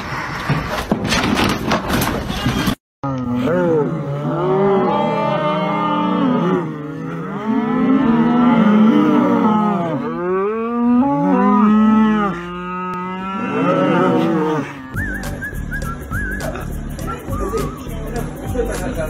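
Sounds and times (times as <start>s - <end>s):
cattle mooing: 3.0s - 15.0s.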